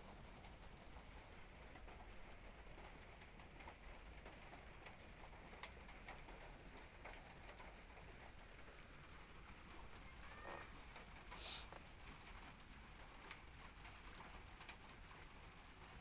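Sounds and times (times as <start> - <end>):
faint background hiss: 0.0 - 16.0.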